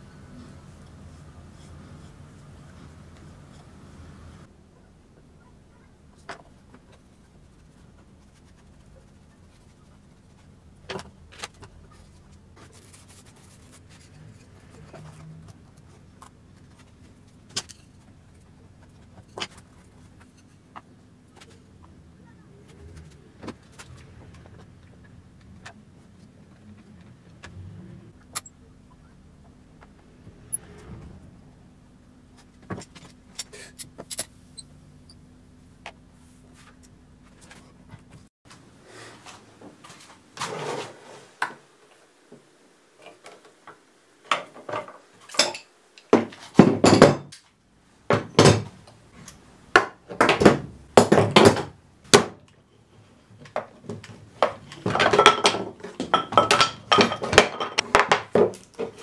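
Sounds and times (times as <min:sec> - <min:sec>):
low steady hum: 0:00.0 - 0:40.4.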